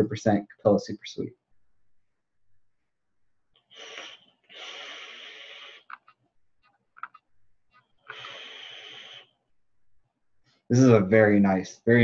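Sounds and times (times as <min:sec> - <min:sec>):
mouth clicks: 0:03.6 - 0:06.2, 0:06.9 - 0:09.4
breathy exhale: 0:03.7 - 0:05.9, 0:08.1 - 0:09.4
airy inhale through e-cigarette: 0:03.7 - 0:06.1, 0:08.0 - 0:09.4.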